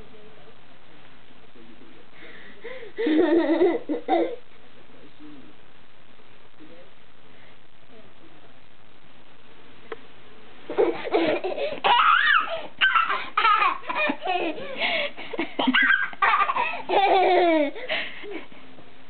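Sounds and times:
toddler laughing: 0:10.7 - 0:14.8, 0:15.6 - 0:17.8.

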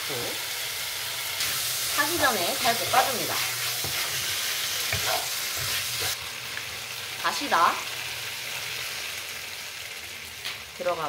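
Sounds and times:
food sizzling in a frying pan: 0:00.0 - 0:11.0
wooden spatula stirring: 0:01.9 - 0:06.2.

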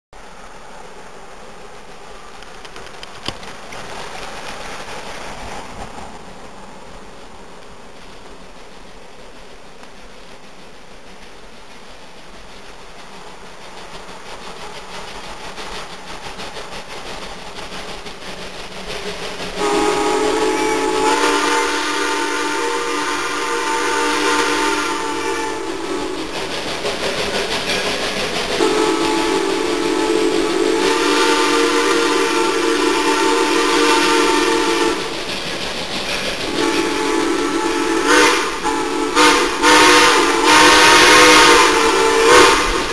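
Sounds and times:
steam locomotive approaching: 0:00.2 - 0:42.9
steam whistle blasts: 0:19.6 - 0:26.3, 0:28.6 - 0:35.1, 0:36.5 - 0:42.9.

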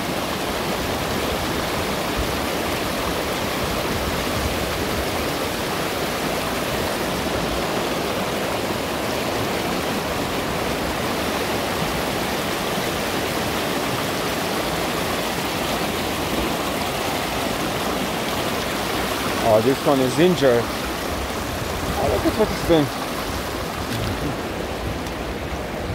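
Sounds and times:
river flowing over stones: 0:00.0 - 0:25.9.

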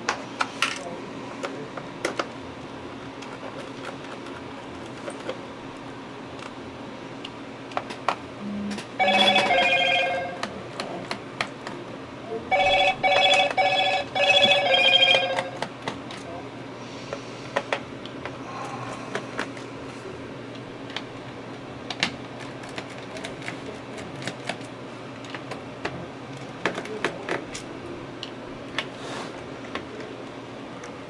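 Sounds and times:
electronic telephone ringer warbling: 0:09.0 - 0:10.5, 0:12.5 - 0:15.6.

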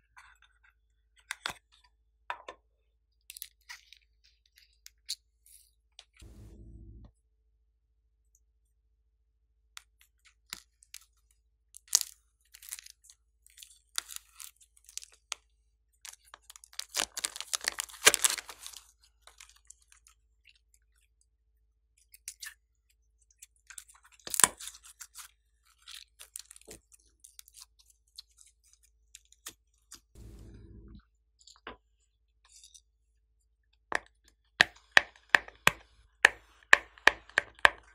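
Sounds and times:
slime crackling and popping: 0:16.7 - 0:18.8.

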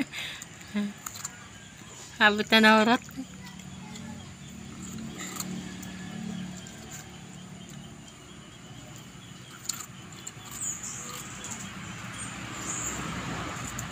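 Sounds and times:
dog chewing crunchy vegetable: 0:00.4 - 0:13.9.

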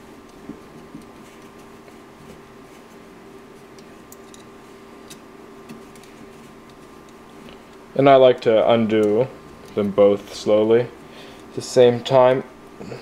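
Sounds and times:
steady low hum: 0:00.0 - 0:13.0
allen key clicking on screws: 0:04.1 - 0:04.5.

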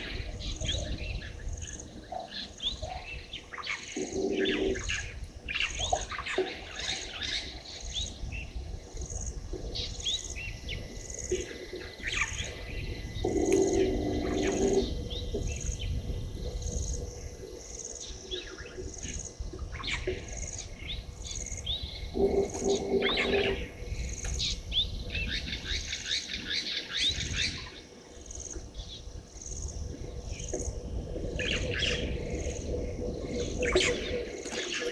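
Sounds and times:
wild birds calling: 0:00.0 - 0:34.9
low drawn-out animal call: 0:03.8 - 0:05.2, 0:12.3 - 0:17.6, 0:21.8 - 0:24.2.

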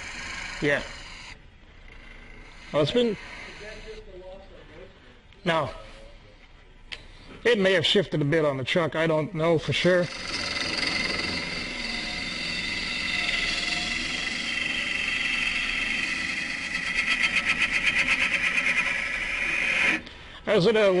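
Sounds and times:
lathe gouge scraping wood: 0:00.0 - 0:04.2, 0:09.7 - 0:21.0.

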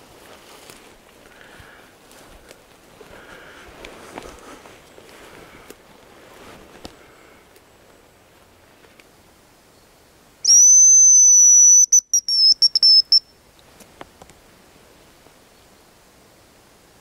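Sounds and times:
high bird whistle lure: 0:10.4 - 0:13.3.

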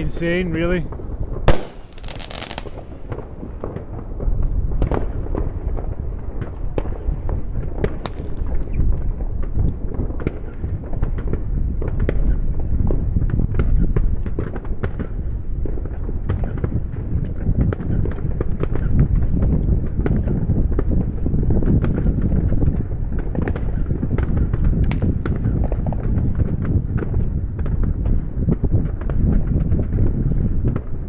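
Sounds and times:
distant fireworks crackling: 0:00.0 - 0:31.0
loud close firework bang: 0:01.4 - 0:04.0.

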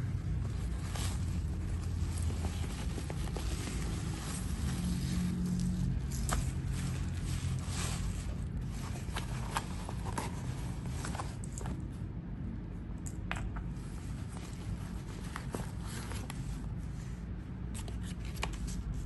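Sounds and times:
fabric bag rustling: 0:00.0 - 0:11.9
steady low hum: 0:00.0 - 0:19.0.

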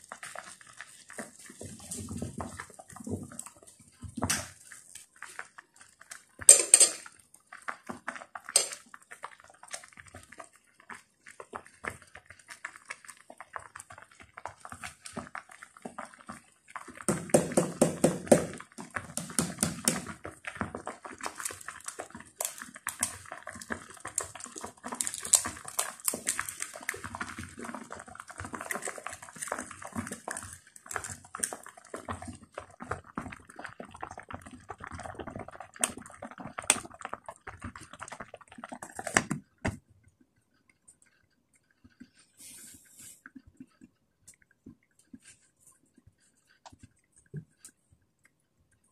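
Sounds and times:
noodles cooking in water: 0:00.0 - 0:48.9
utensils tapping a pan: 0:06.5 - 0:07.1, 0:08.6 - 0:08.8.

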